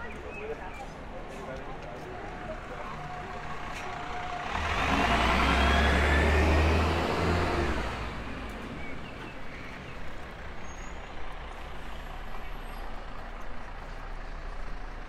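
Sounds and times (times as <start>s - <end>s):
engine passing by: 3.5s - 9.2s.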